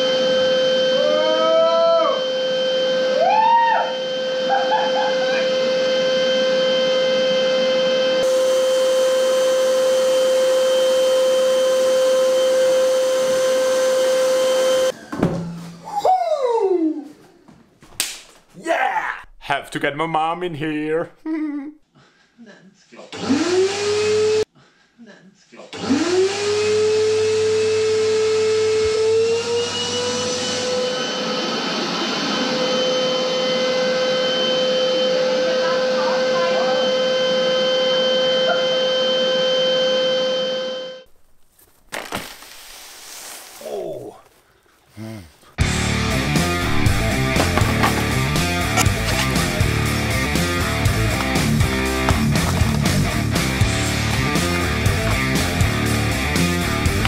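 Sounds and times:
vacuum cleaner whining: 0.0 - 15.2, 23.2 - 24.4, 25.8 - 41.1, 45.6 - 57.0.

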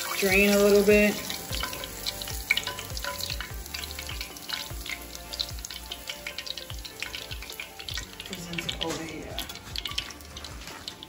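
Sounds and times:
oil sizzling and popping: 0.0 - 11.0.

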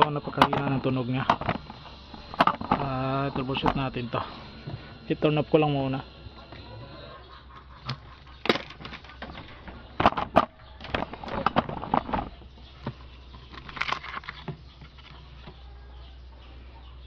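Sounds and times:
steady low hum: 0.0 - 17.0
knocks clicks and scrapes: 0.2 - 2.9, 7.9 - 15.2.

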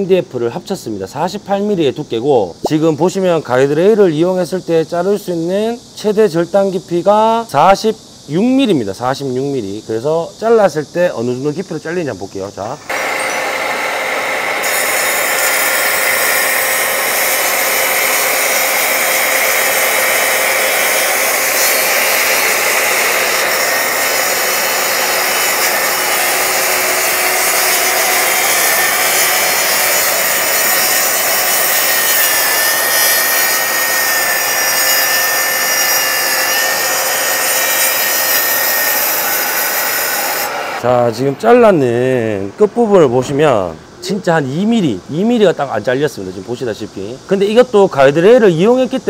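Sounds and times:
plunge saw cutting wood: 12.9 - 41.7.

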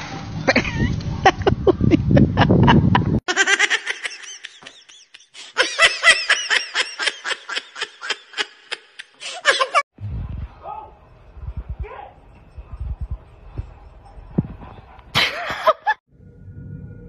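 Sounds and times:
person laughing hard: 0.5 - 9.8, 15.2 - 16.0
rumbling noise: 10.0 - 15.2.

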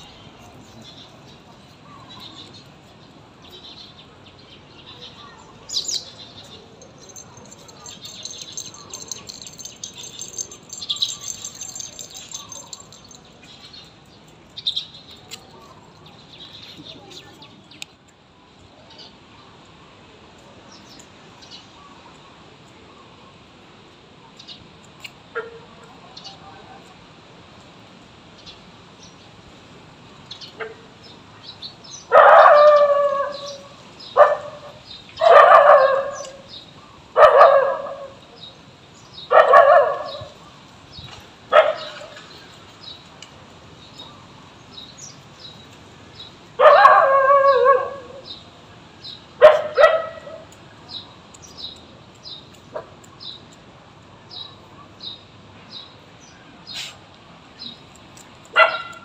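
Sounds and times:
faint high chirps: 4.9 - 13.9
dog barking: 32.1 - 33.6, 34.2 - 36.4, 37.2 - 38.2, 39.3 - 40.4, 41.5 - 42.2, 46.6 - 48.2, 49.4 - 50.5, 58.6 - 59.0.

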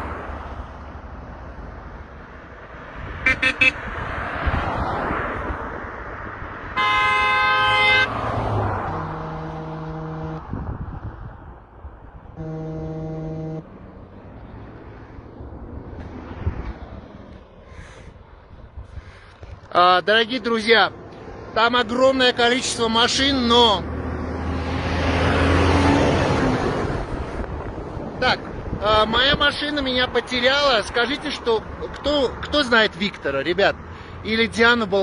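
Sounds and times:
road and wind noise: 0.0 - 35.0
car horn honking: 3.2 - 3.8, 6.8 - 8.2, 8.8 - 10.4, 12.4 - 13.6
lower-pitched car horn honks: 3.2 - 3.8, 6.8 - 8.1, 8.9 - 10.4, 12.4 - 13.6.

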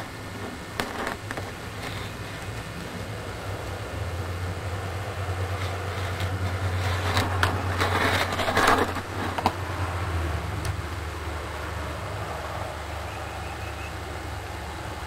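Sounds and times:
rustling handling noise: 0.0 - 3.8, 5.3 - 9.7
steady low hum: 0.0 - 15.0.

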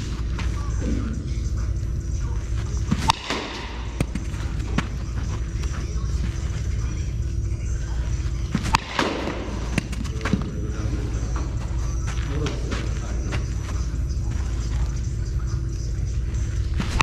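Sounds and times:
steady low rumble: 0.0 - 17.0
baseball striking smack: 2.9 - 5.0, 8.6 - 10.5.

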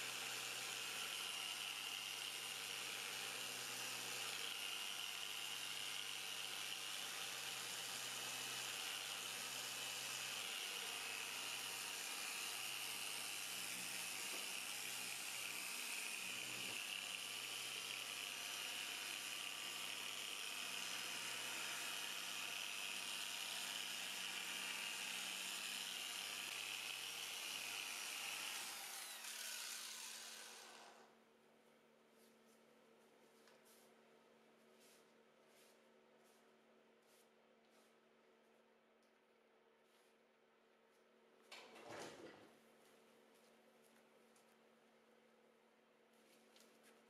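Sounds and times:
orbital sander whining: 28.4 - 31.0.

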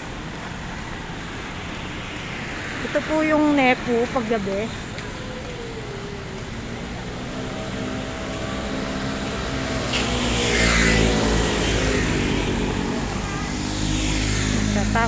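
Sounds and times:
vehicle passing by: 0.0 - 15.0.

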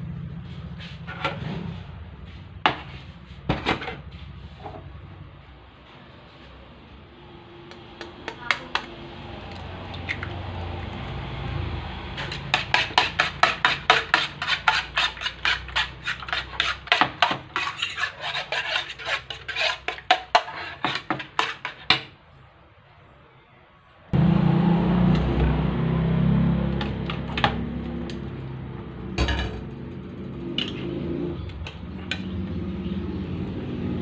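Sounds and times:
fork beating eggs on a plate: 7.7 - 8.9, 12.2 - 22.0.

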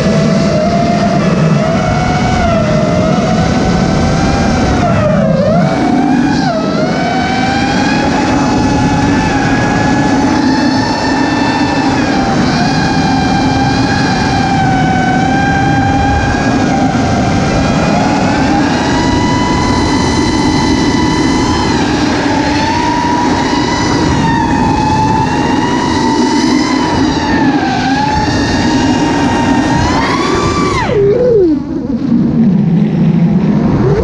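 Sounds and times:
quadcopter motors whining: 0.0 - 34.0
wind rushing over microphone: 0.0 - 34.0.

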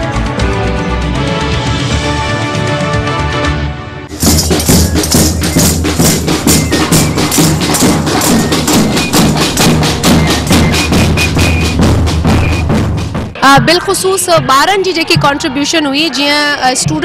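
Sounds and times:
bass line: 4.1 - 13.8
fast percussion beat: 4.1 - 17.0.

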